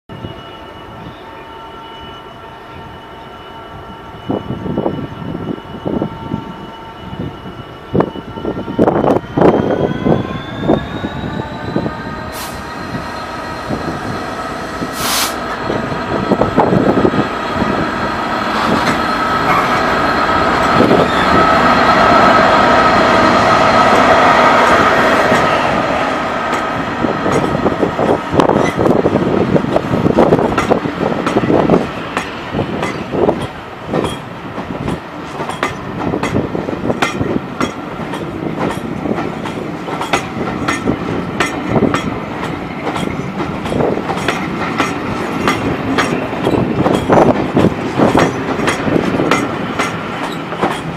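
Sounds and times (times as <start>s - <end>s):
diesel locomotive engine: 0.1s - 50.9s
wheels clicking over rail joints: 37.0s - 50.9s.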